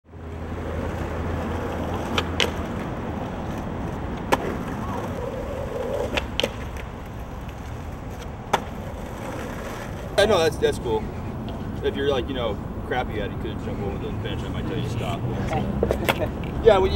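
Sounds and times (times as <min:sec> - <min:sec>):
skateboard wheels rolling on asphalt: 0:00.0 - 0:16.9
skateboard clacks: 0:00.6 - 0:10.4, 0:15.8 - 0:16.7.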